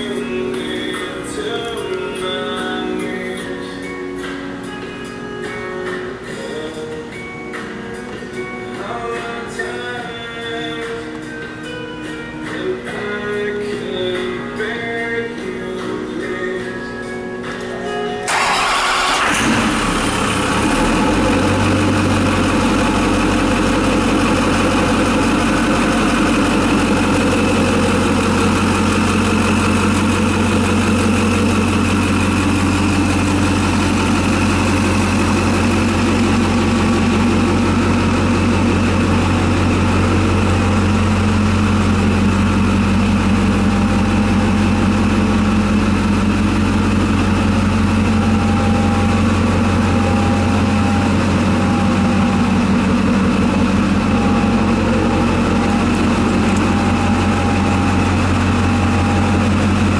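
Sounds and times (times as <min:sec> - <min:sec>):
diesel engine starting and idling: 0:18.1 - 0:59.9.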